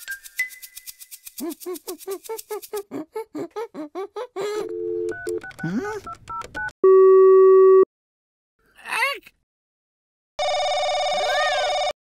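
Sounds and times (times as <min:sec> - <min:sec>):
electronic dialing beeps: 0:04.6 - 0:07.9
phone dial tone: 0:04.6 - 0:07.9, 0:10.4 - 0:11.9.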